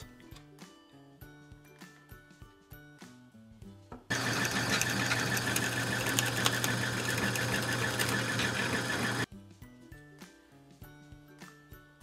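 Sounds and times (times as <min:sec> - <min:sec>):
drill press boring wood: 0:04.1 - 0:09.3.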